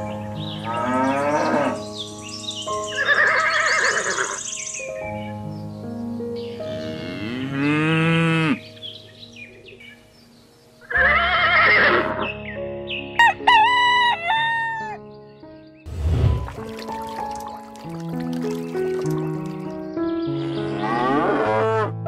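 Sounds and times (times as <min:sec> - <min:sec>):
background music: 0:00.0 - 0:22.0
farm animal calls: 0:02.9 - 0:04.4.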